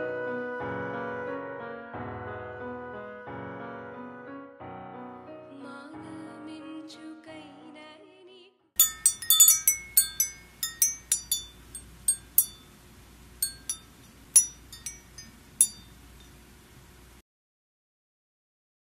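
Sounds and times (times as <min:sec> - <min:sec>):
bright ringing clinks: 0:08.8 - 0:16.6.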